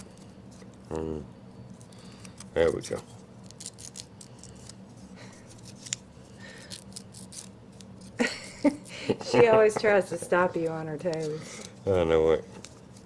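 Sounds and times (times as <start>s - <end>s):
nail file scratching: 2.2s - 4.8s, 6.6s - 8.9s.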